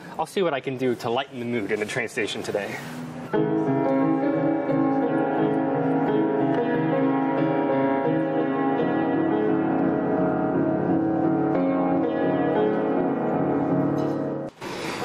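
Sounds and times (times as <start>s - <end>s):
piano playing slow chords: 2.8s - 14.6s.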